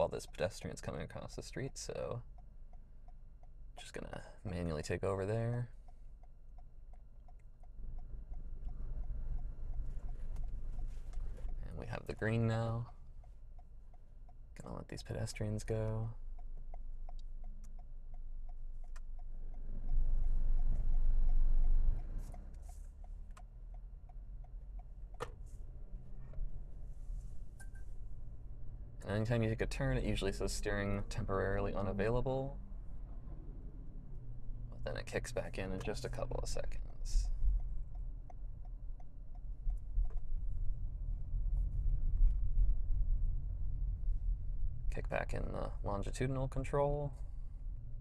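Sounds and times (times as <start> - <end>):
turn signal ticking: 0.0 - 45.0
car road rumble inside cabin: 0.0 - 48.0
car pulling away rumble: 18.2 - 36.6.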